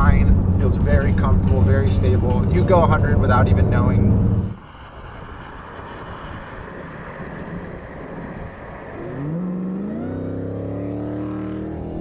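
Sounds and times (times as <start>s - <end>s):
car engine accelerating: 0.0s - 4.9s, 5.5s - 12.0s
wind and road noise: 0.0s - 12.0s.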